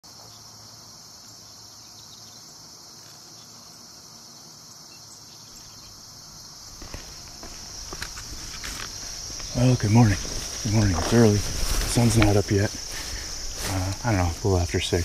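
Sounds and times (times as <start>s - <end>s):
insects trilling: 0.0s - 15.0s.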